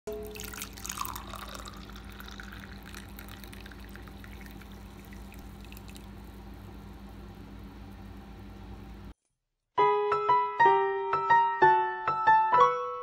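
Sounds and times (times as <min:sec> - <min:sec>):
tea pouring into glass mug: 0:00.1 - 0:06.6.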